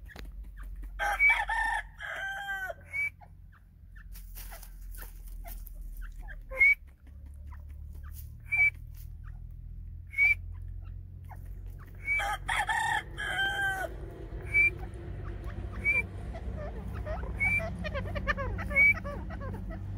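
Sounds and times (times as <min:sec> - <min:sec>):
low steady hum: 0:00.0 - 0:19.9
bird high sharp chirps: 0:08.0 - 0:09.5, 0:10.1 - 0:12.3, 0:14.4 - 0:16.2, 0:16.9 - 0:19.2.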